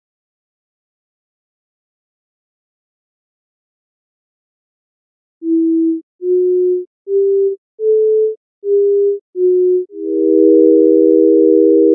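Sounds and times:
synthesized sine tones: 0:05.5 - 0:11.9.

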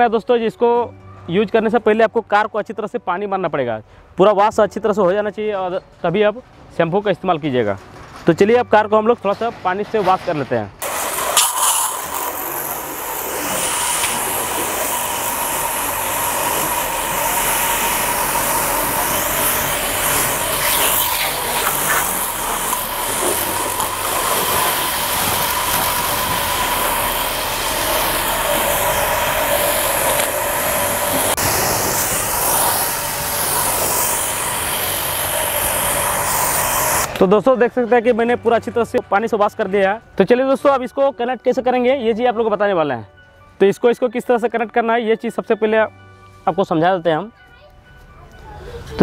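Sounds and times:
water jet hissing: 0:10.8 - 0:37.2
pressure washer whining: 0:10.8 - 0:37.3.

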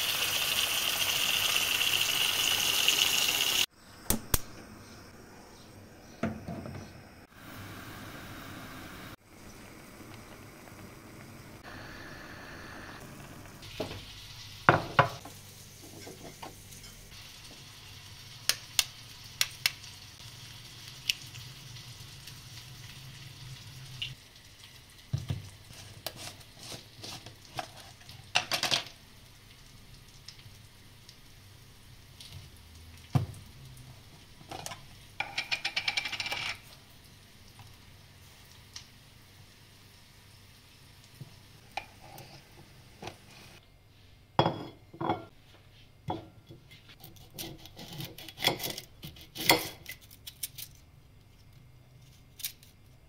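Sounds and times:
pot boiling: 0:00.0 - 0:03.7, 0:07.2 - 0:43.6.

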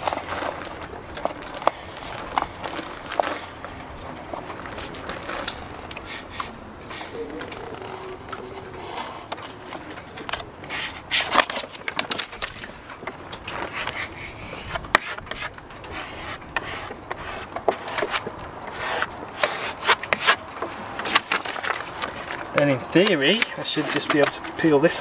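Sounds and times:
card scraping on vinyl sheet: 0:13.5 - 0:20.4.

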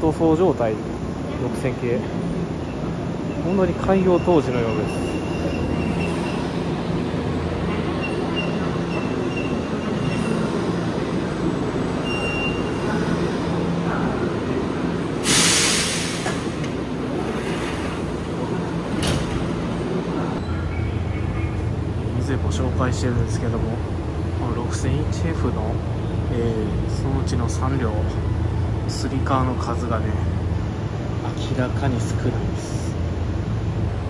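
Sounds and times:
air hiss of doors opening: 0:15.2 - 0:18.1.

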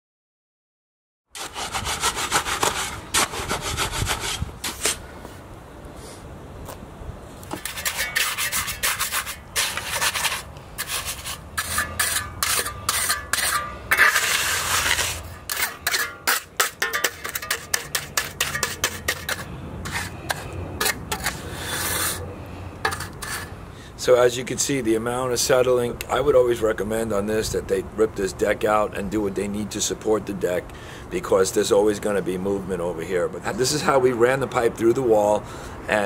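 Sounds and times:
trowel scraping wet concrete: 0:01.4 - 0:05.0, 0:07.5 - 0:23.5.

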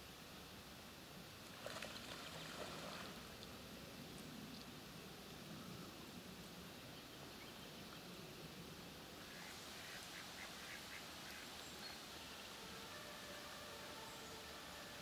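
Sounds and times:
steady background hiss: 0:00.0 - 0:15.0
ducks quacking: 0:09.2 - 0:11.5.

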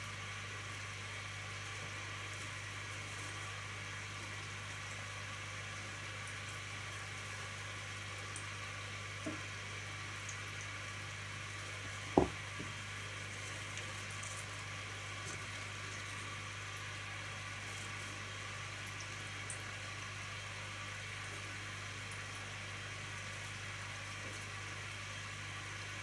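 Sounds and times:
steady hiss with low hum: 0:00.0 - 0:26.0
sharp knock of bark on gravel: 0:12.2 - 0:12.7
faint tap: 0:12.2 - 0:12.8.

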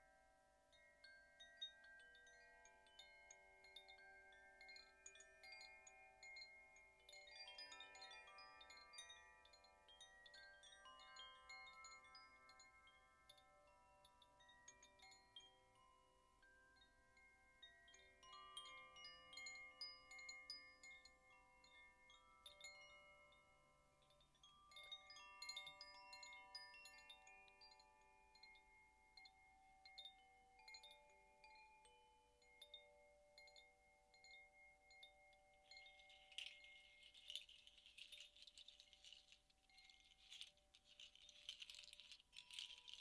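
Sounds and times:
bright jingling clatter: 0:30.1 - 0:43.0
hand-held chimes ringing: 0:30.1 - 0:43.0.

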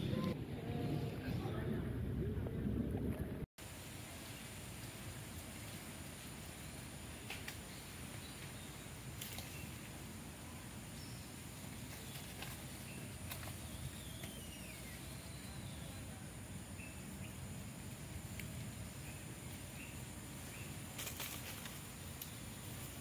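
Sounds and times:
low rumble: 0:00.0 - 0:03.5.

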